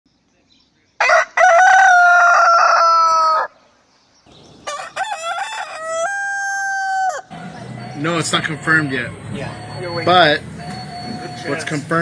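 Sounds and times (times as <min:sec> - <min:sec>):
rooster crowing: 0:01.0 - 0:03.6, 0:04.6 - 0:08.0.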